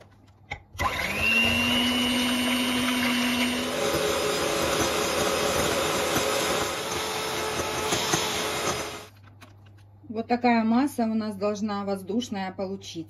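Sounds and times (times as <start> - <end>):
electric hand mixer whirring: 0.8 - 9.1.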